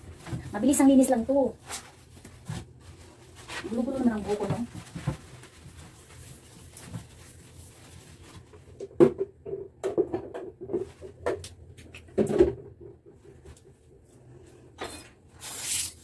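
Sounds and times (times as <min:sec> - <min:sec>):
plastic bottles knocking and clattering: 0:08.6 - 0:13.6.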